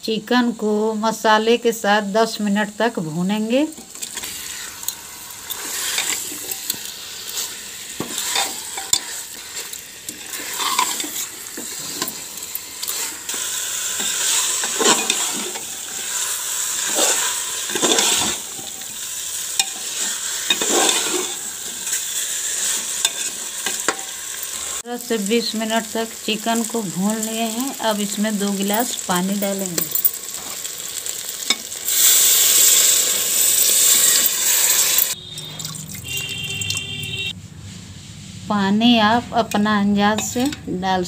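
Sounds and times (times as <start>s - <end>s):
chicken sizzling in oil: 3.3s - 35.2s
metal spoon scraping a pot: 3.8s - 24.2s.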